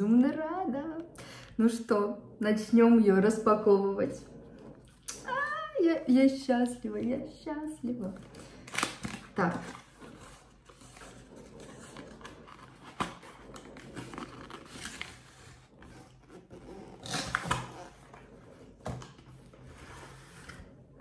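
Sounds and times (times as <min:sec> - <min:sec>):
cardboard rubbing and scraping: 0:09.4 - 0:21.0.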